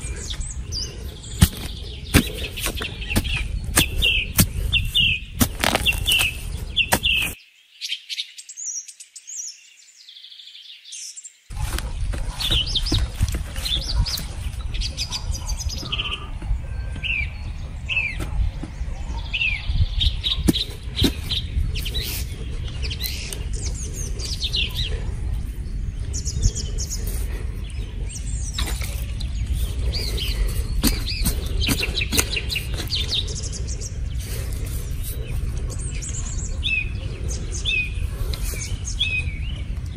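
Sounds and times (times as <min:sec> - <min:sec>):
hoe digging dry soil: 0:00.0 - 0:07.4, 0:11.5 - 0:14.6, 0:20.3 - 0:24.6, 0:28.5 - 0:33.2
steady low rumble: 0:00.0 - 0:07.4, 0:11.5 - 0:39.9
birds chirping: 0:00.0 - 0:39.9.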